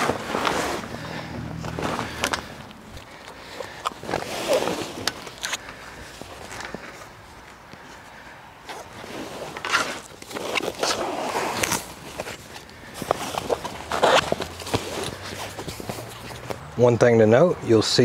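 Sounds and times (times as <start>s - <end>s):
fabric rustling and sliding: 0.0s - 2.6s, 3.6s - 7.1s, 8.7s - 16.6s.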